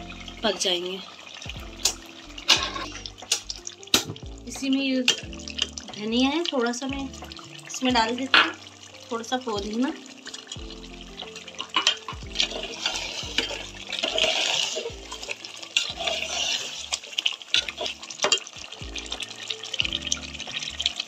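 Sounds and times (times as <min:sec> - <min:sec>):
ladle scraping metal pot: 0:00.0 - 0:04.2, 0:11.2 - 0:18.5
wet stirring and sizzling: 0:00.0 - 0:21.0.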